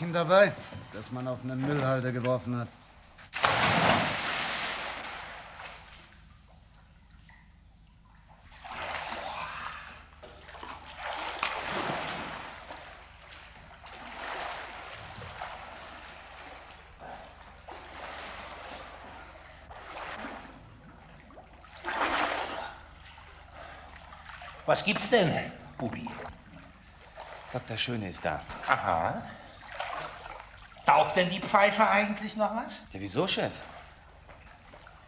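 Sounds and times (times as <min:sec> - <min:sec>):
swimmer splashing: 0:03.3 - 0:07.3, 0:08.2 - 0:31.8.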